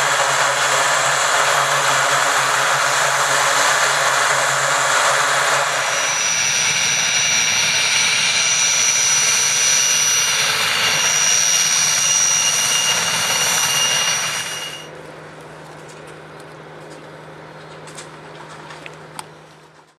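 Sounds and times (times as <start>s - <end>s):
helicopter turbine whine and rush: 0.0s - 15.0s
low hum: 0.0s - 19.9s.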